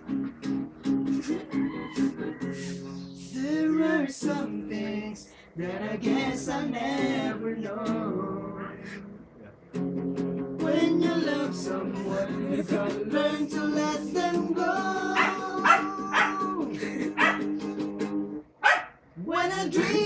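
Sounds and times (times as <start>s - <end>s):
guitar strummed: 0.0s - 3.3s, 7.0s - 18.5s
young men singing together: 3.3s - 8.8s, 10.6s - 17.4s.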